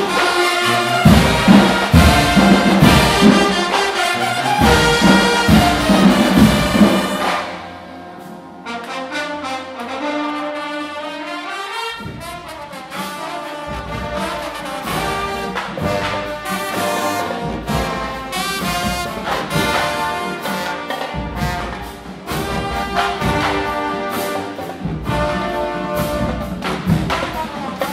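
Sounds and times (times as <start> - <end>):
drum strokes pounding: 0.0 - 8.4, 12.0 - 27.9
brass horns playing chords: 0.0 - 27.9.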